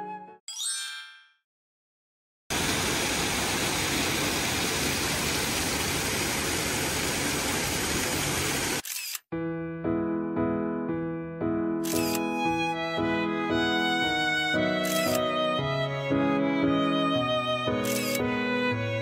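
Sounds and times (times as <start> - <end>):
music: 0.0 - 1.2, 9.3 - 19.0.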